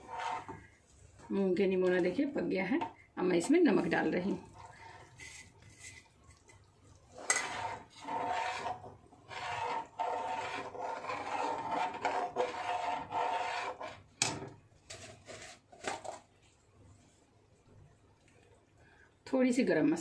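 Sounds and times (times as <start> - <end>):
ladle scraping pan bottom: 0.0 - 0.7, 7.1 - 14.0.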